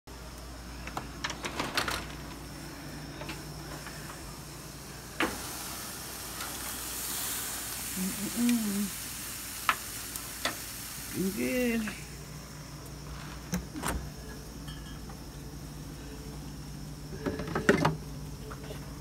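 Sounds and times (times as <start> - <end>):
chicken sizzling on a grill: 3.9 - 13.5.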